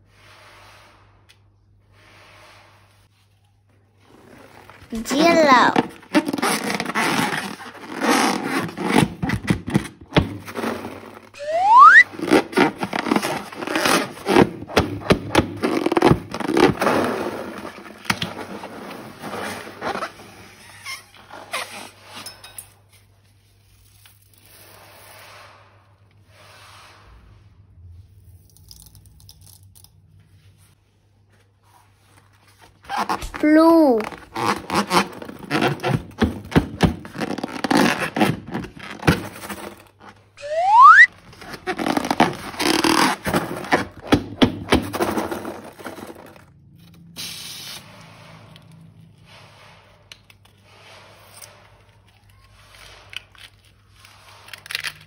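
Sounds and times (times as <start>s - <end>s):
rising squeak: 11.4s - 12.1s, 40.4s - 41.1s.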